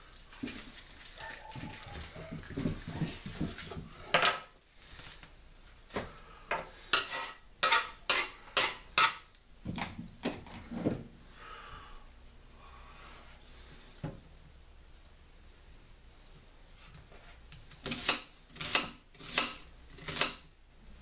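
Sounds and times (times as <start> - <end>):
knife and dishes clinking: 6.9 - 9.2.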